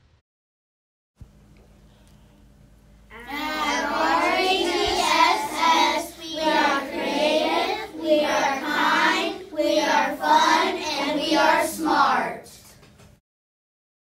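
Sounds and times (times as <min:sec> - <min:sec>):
children chanting in unison: 0:03.1 - 0:12.6.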